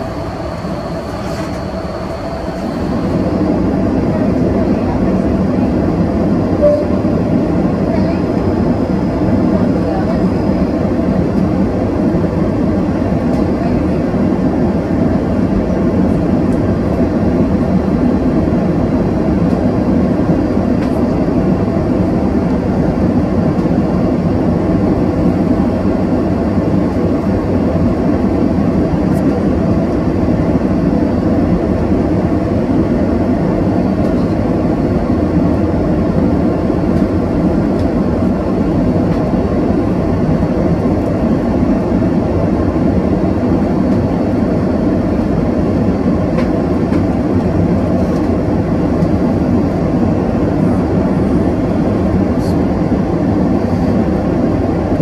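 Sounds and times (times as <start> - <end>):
faint high whine: 0.0 - 4.9, 6.5 - 8.3
airliner cabin engine and airflow noise: 0.0 - 55.0.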